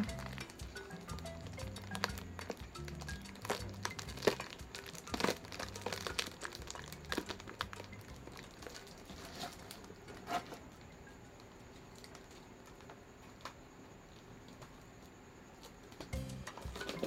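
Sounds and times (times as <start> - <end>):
plastic bag crinkling: 0.0 - 10.5.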